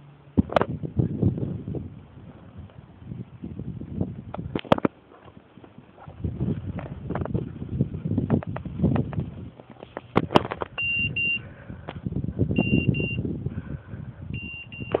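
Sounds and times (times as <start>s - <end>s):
rustling dry grass and brush: 0.4s - 10.8s
high double beeps: 10.8s - 11.4s, 12.6s - 13.2s, 14.4s - 15.0s.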